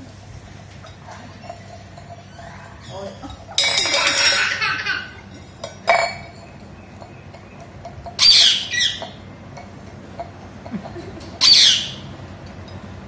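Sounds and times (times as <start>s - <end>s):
steel tumbler clinking on tile: 3.0s - 8.3s
parakeet squawking: 8.2s - 9.2s, 11.4s - 12.0s.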